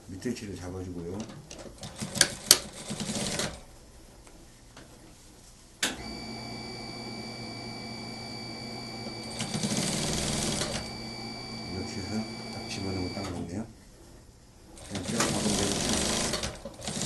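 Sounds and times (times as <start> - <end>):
sewing machine stitching: 1.2 - 3.6, 8.4 - 13.4, 14.8 - 17.0
steady high whine: 5.9 - 14.2.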